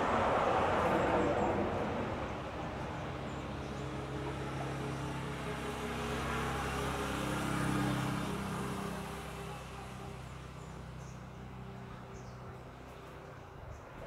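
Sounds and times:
vehicle engine passing by: 0.0s - 13.9s.

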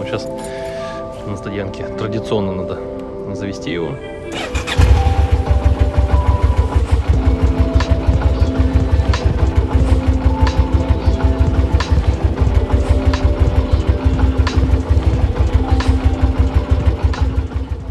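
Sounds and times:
motorcycle engine idling: 4.4s - 17.9s.

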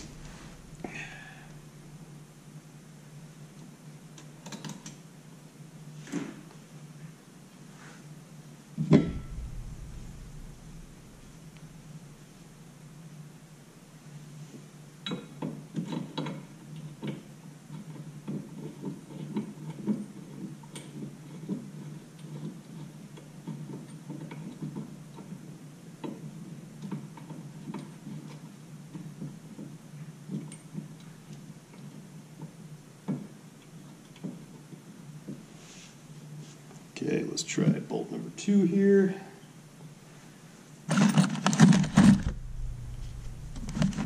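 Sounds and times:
low hum: 0.0s - 2.6s, 8.8s - 14.0s, 41.8s - 44.0s.

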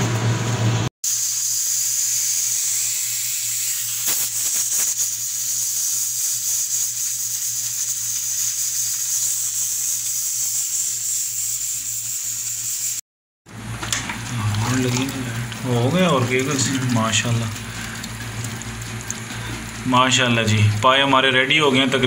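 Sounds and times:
pressure cooker steam hissing: 1.0s - 13.0s.

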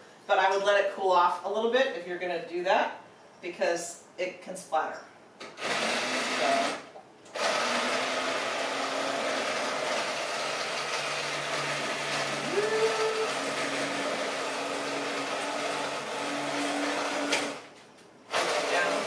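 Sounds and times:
immersion blender motor whirring: 5.5s - 17.7s, 18.3s - 19.0s.

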